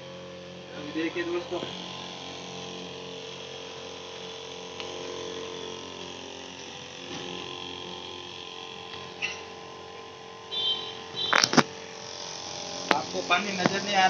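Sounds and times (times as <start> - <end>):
pump motor humming: 0.0 - 14.0.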